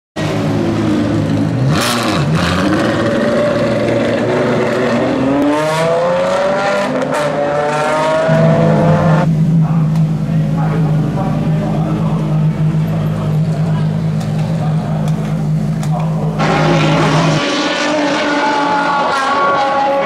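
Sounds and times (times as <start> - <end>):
sports car engine accelerating: 0.2 - 20.0.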